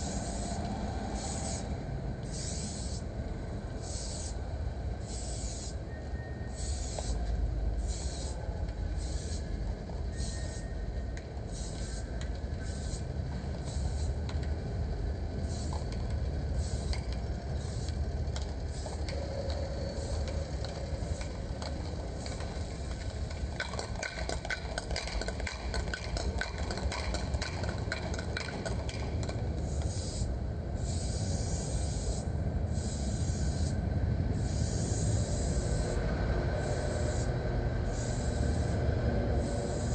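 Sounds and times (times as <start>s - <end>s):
spray paint can hissing: 0.0s - 3.1s, 3.8s - 4.4s, 5.0s - 5.8s, 6.5s - 9.5s, 10.1s - 10.6s, 11.5s - 14.2s, 15.4s - 15.9s, 16.6s - 18.1s, 18.7s - 21.4s, 23.5s - 33.8s, 34.4s - 36.0s, 36.6s - 38.8s, 39.4s - 39.9s.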